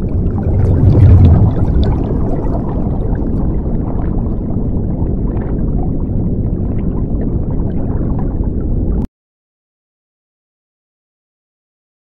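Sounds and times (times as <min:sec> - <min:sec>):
churning underwater rumble: 0:00.0 - 0:09.1.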